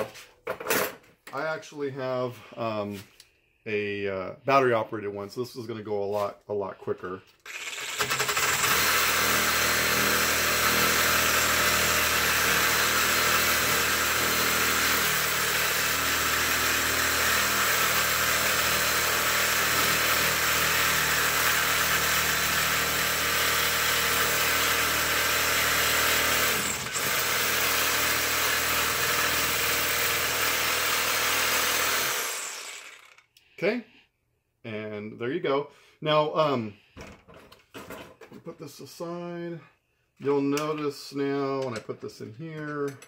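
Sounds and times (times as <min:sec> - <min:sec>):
reciprocating saw cutting metal: 0:07.4 - 0:33.2.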